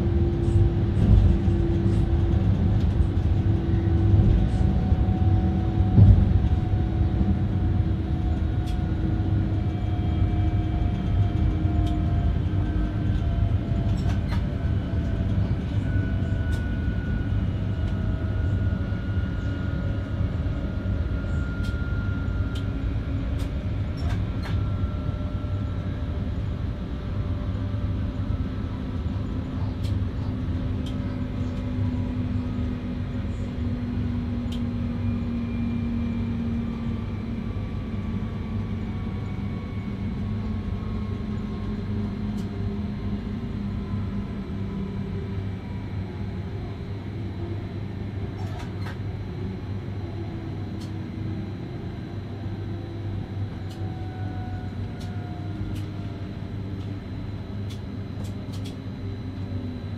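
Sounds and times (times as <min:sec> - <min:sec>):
train rumble: 0:00.0 - 0:59.9.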